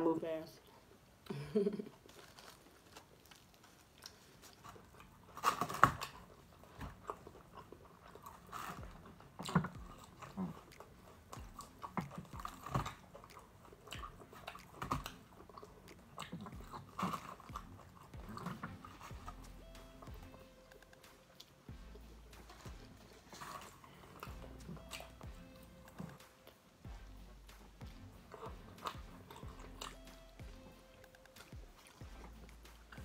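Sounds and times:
biting and chewing food: 0:00.7 - 0:33.0.

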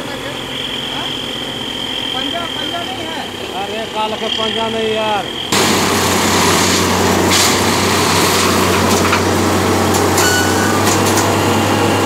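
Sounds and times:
track machine engine humming: 0:00.0 - 0:12.0.

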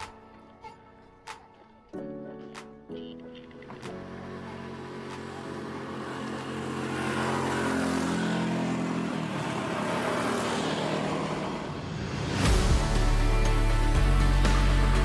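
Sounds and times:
motorcycle passing by: 0:03.6 - 0:13.1.

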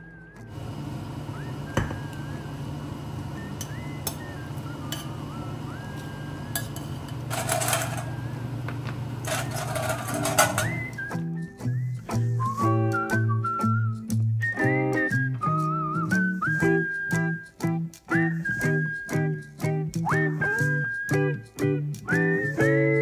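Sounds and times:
faint music with whistling: 0:00.0 - 0:08.5, 0:09.3 - 0:23.0
low kitchen hum: 0:00.0 - 0:14.4.

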